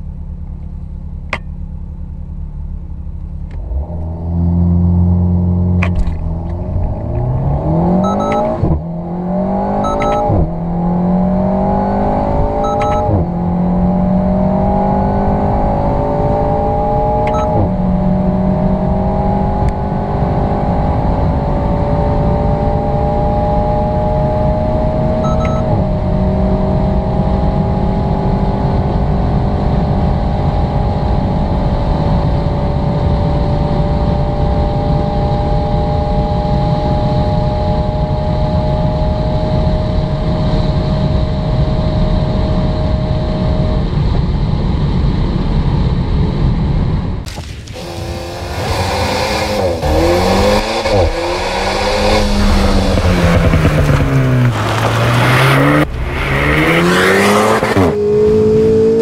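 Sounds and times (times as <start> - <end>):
car engine at full throttle: 0.0 - 59.0
short beep: 7.9 - 8.8, 9.7 - 10.5, 12.6 - 13.2, 17.3 - 17.7, 25.2 - 25.8.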